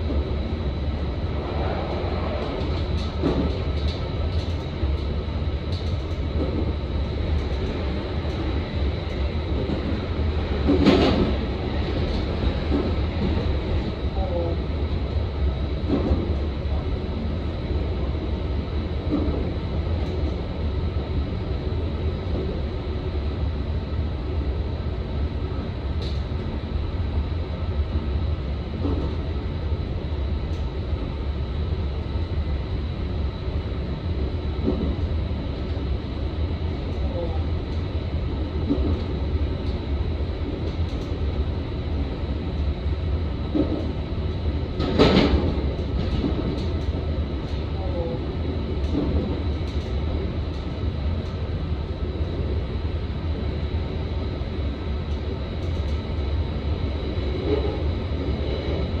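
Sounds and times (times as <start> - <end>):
train wheels rumbling on rail: 0.0 - 59.0
train clatter: 1.4 - 5.1, 9.1 - 13.6, 44.8 - 48.1.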